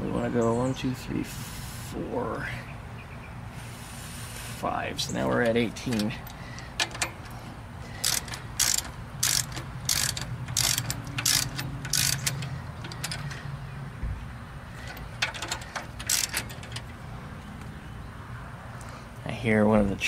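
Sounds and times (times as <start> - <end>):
socket wrench ratchet clicking: 8.0 - 13.4, 14.9 - 16.9.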